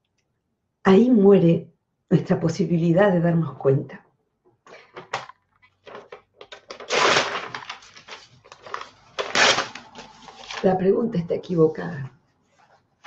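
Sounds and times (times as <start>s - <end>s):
rustling and clicking handling noise: 4.7s - 10.7s.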